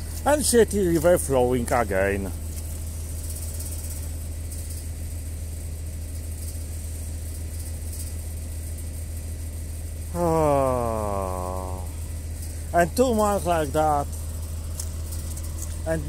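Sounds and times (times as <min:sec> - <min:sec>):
engine humming steadily: 0:00.0 - 0:08.0, 0:09.4 - 0:16.0
man talking: 0:10.2 - 0:12.0, 0:12.8 - 0:14.0.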